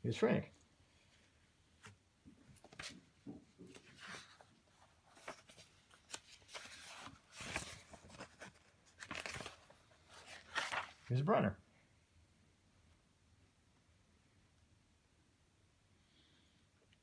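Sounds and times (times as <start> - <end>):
paper sheets rustling: 3.7 - 11.1.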